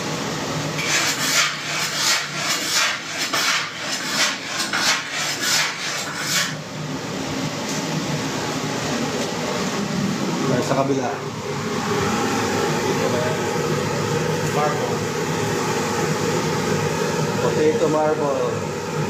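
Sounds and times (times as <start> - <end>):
knife sawing through raw meat: 0.8 - 6.6.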